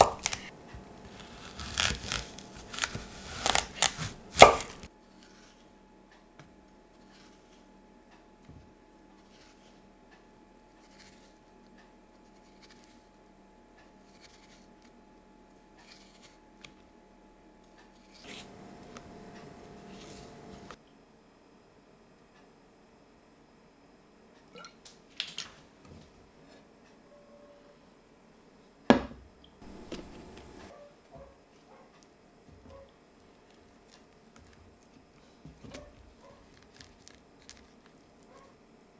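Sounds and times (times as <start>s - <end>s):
knife slicing on cutting board: 0.0s - 4.9s.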